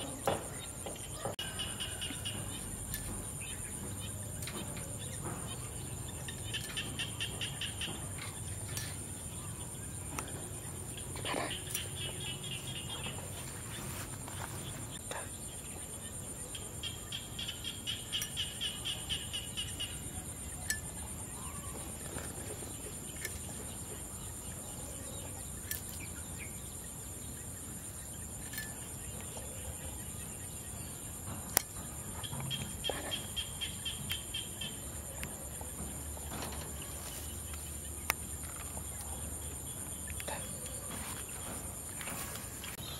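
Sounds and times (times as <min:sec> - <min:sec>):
insects droning: 0:00.0 - 0:42.9.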